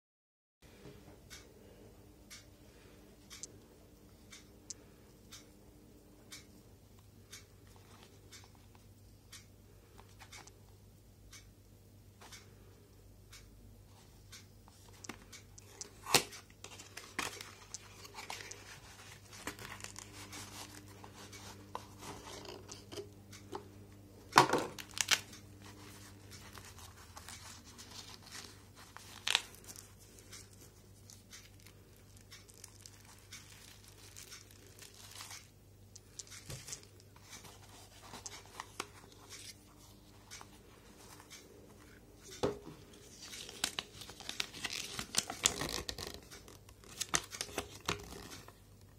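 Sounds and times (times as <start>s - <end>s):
packaging rustling and crinkling: 15.0s - 23.1s, 24.6s - 35.5s, 42.9s - 48.6s.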